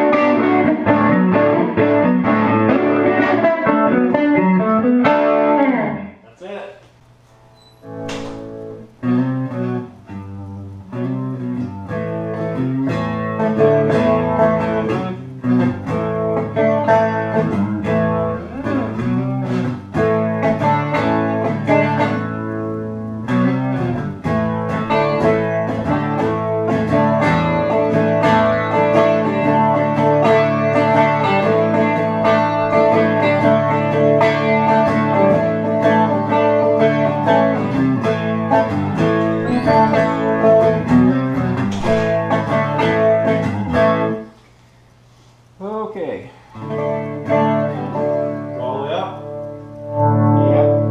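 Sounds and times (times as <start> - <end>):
electric guitar through rotating speaker: 0.0 - 45.6, 46.3 - 50.9.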